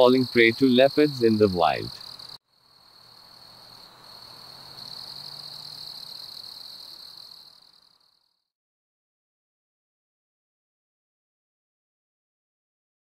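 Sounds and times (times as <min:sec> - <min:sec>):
insects trilling: 0:00.0 - 0:08.4
faint outdoor hiss: 0:00.0 - 0:08.5.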